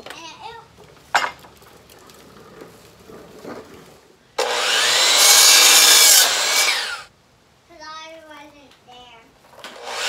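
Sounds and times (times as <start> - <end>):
miter saw cutting wood: 4.4 - 7.1, 9.7 - 10.0.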